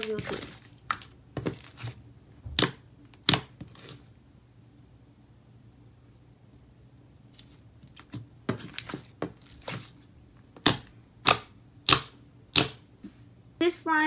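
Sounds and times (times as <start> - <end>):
slime clicking and popping: 2.6 - 3.8, 10.6 - 12.8.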